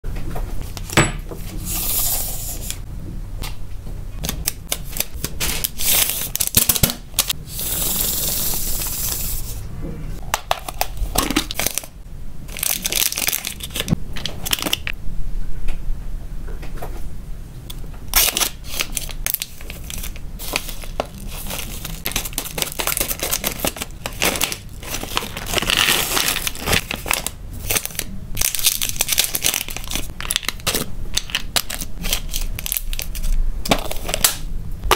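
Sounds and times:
plastic packaging crinkling: 4.3 - 7.4, 10.4 - 14.9, 18.1 - 34.4.

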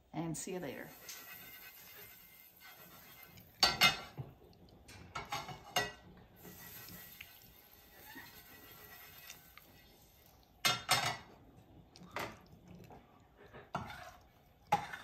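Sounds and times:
pans and utensils clanking: 0.9 - 7.1, 10.6 - 11.4, 13.6 - 15.0.

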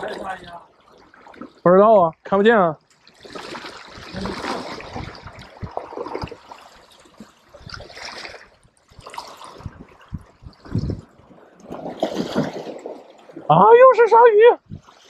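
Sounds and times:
small waves splashing on stone: 11.6 - 13.5.

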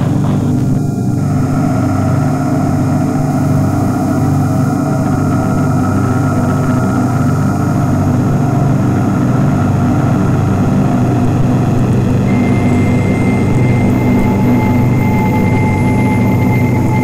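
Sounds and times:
low droning rumble: 0.0 - 17.0
thin high tone: 12.3 - 17.0.

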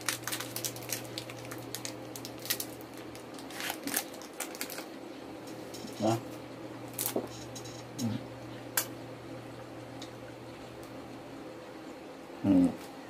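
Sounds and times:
plastic candy wrapper crinkling: 0.0 - 5.0
steady low hum: 0.0 - 13.0.

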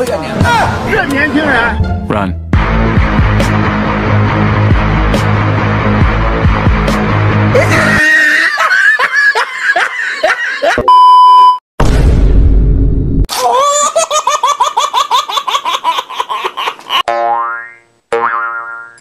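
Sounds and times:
high-pitched rhythmic laugh: 7.5 - 10.9, 13.4 - 17.1
laughter in quick pulses: 7.6 - 10.9
steady beep: 10.9 - 11.6.

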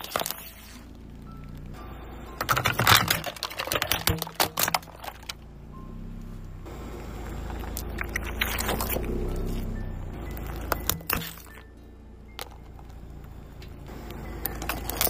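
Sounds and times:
plastic toys cracking under tyre: 0.0 - 1.8, 2.4 - 5.4, 7.2 - 9.6, 10.4 - 11.7, 14.4 - 15.0
low engine hum: 0.0 - 15.0.

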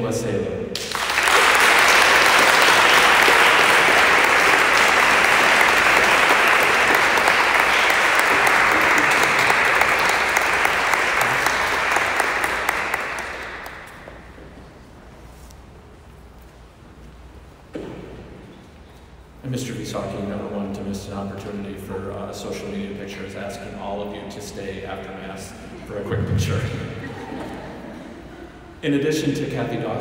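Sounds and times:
audience applauding: 0.8 - 14.4.

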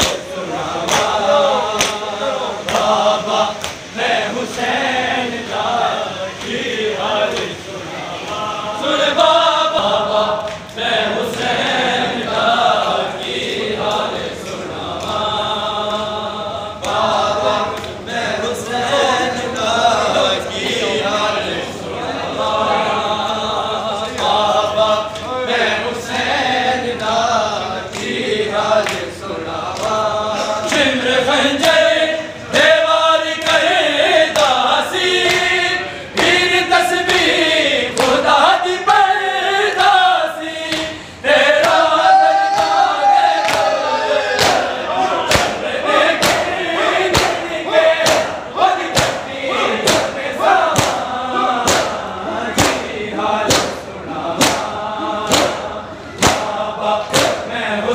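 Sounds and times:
men chanting in unison: 0.0 - 57.9
hands slapping bare chests: 51.7 - 52.0, 52.6 - 52.8.

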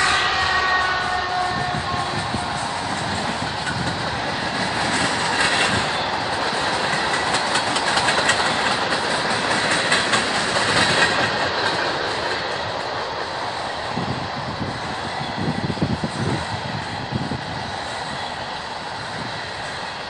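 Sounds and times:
train wheels on rail: 0.0 - 20.0
wheels clicking over rail joints: 2.1 - 17.4.

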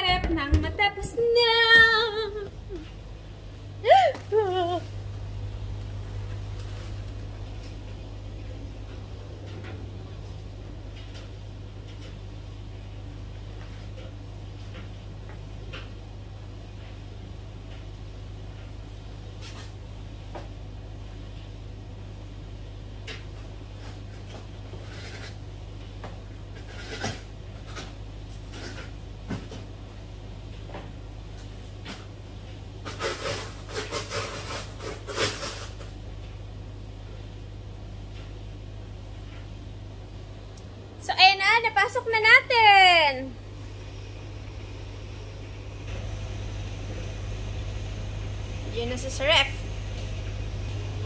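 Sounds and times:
freezer low hum: 0.0 - 51.0.

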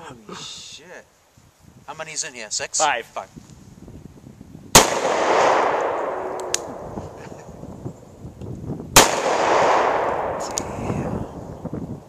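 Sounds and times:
gunshot echo: 4.7 - 7.2, 9.0 - 11.1.

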